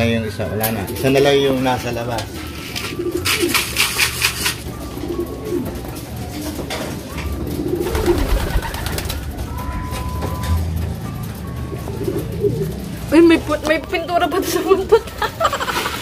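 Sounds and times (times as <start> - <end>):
pigeons cooing: 0.0 - 16.0
fluttering wingbeats: 2.2 - 13.7.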